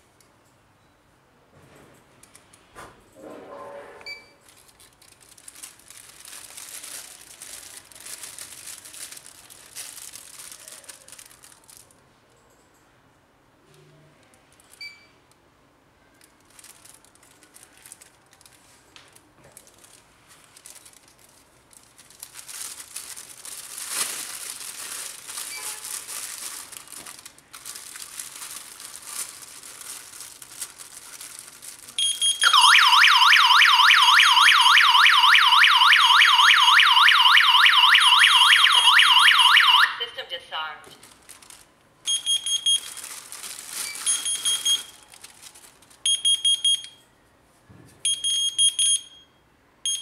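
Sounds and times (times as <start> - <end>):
plastic bag crinkling: 4.4 - 12.1, 16.1 - 39.6, 40.8 - 46.2
electronic alarm siren: 32.4 - 40.1.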